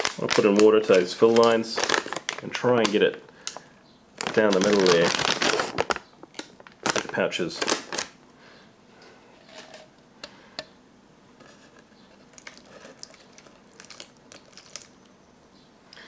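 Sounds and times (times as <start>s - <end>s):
plastic bag crinkling: 0.0s - 8.2s, 12.2s - 15.1s
water trickling into a bag: 4.2s - 7.2s, 12.2s - 15.1s.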